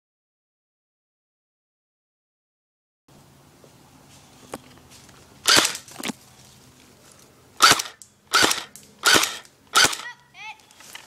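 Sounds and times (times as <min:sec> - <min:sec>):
airsoft rifle shots: 0:05.4 - 0:05.9, 0:07.6 - 0:10.1.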